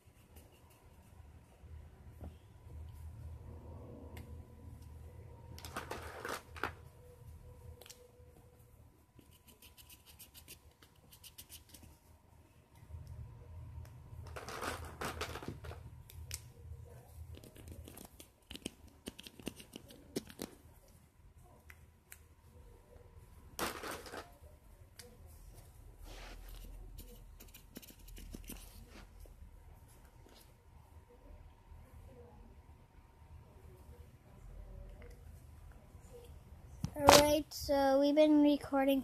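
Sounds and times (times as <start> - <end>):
rustling and scratching of handling: 5.6 - 12.2, 14.2 - 21.6, 23.6 - 30.9.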